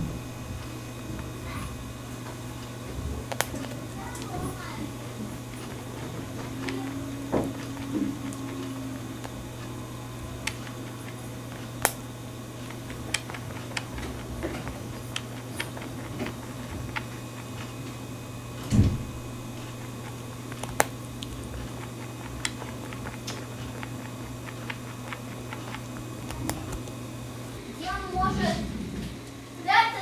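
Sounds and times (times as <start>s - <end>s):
dull thump: 0.0s - 0.9s, 18.7s - 19.8s
rabbit crunching and gnawing: 0.0s - 30.0s
steady low hum: 0.0s - 30.0s.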